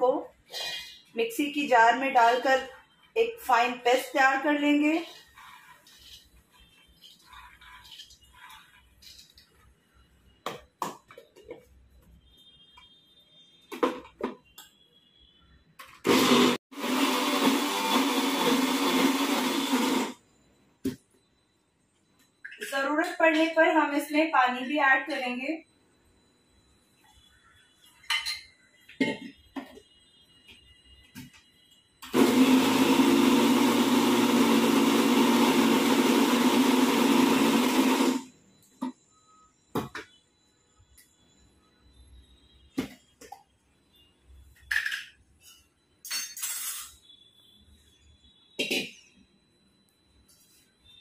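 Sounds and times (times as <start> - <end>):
mixer grinder running: 16.0 - 20.2, 32.0 - 38.3.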